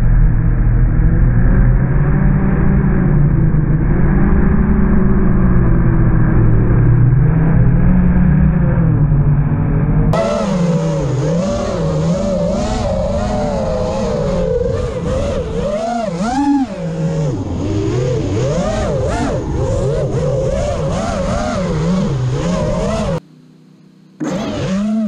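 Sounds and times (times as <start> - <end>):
drone motors whining: 9.8 - 23.2, 24.1 - 25.0.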